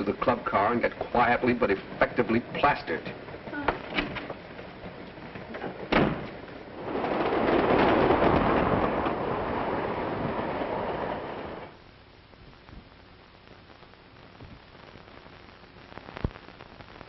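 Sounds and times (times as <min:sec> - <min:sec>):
soundtrack hiss: 0:00.0 - 0:06.9, 0:09.0 - 0:17.0
rush of moving train: 0:00.0 - 0:11.8
compartment door banging shut: 0:05.9 - 0:06.3.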